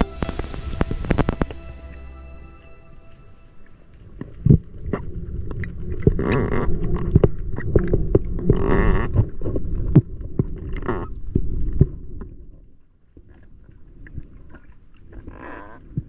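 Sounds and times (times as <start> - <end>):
underwater rumble of water: 3.6 - 12.6.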